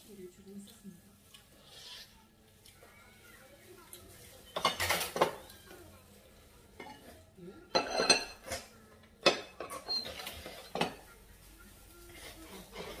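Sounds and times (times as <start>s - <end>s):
dishes and cutlery clinking: 3.9s - 5.8s, 6.7s - 11.2s, 12.1s - 13.0s.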